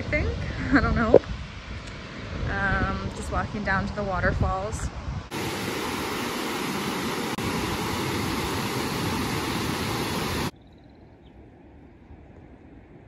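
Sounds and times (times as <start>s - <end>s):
water rushing over waterfall: 5.3s - 10.5s.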